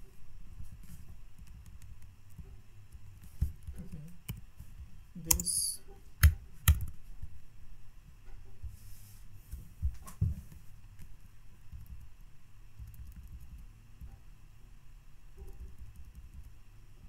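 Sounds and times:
mouse and keyboard clicks: 0:05.2 - 0:07.0.

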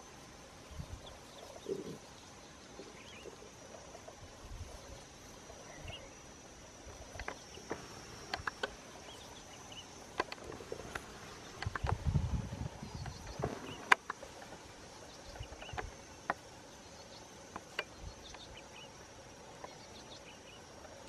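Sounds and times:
faint bird chirps: 0:00.0 - 0:10.0
insect drone: 0:00.0 - 0:21.0.

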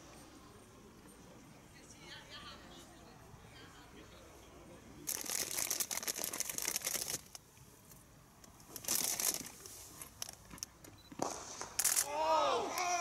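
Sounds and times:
crackling rustling on microphone: 0:05.0 - 0:12.1.

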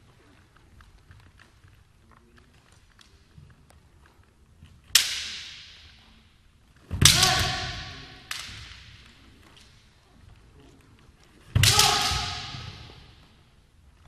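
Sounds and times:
bamboo swords striking: 0:04.9 - 0:06.1, 0:06.9 - 0:09.2, 0:11.5 - 0:13.4
person shouting: 0:07.0 - 0:08.2, 0:11.6 - 0:12.9.

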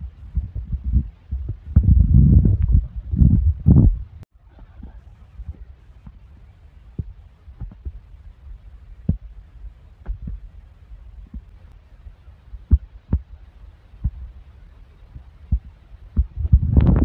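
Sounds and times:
low rumble: 0:00.0 - 0:06.0, 0:15.5 - 0:17.0.

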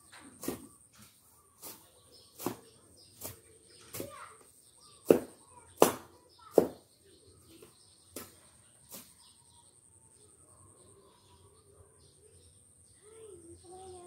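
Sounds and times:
blade chopping weeds: 0:01.6 - 0:04.2, 0:05.0 - 0:06.8.

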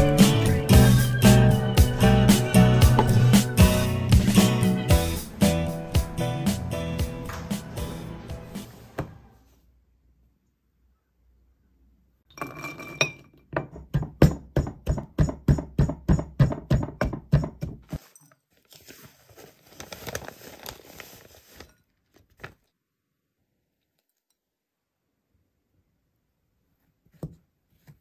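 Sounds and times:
pestle knocking on ceramic: 0:13.6 - 0:17.9
foil packet rustling: 0:17.9 - 0:22.7.

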